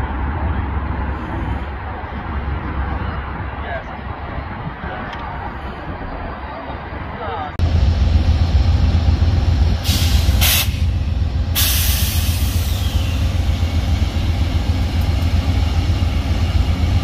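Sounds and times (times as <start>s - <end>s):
diesel locomotive rumbling: 0.0s - 17.0s
air brakes hissing: 9.8s - 14.3s.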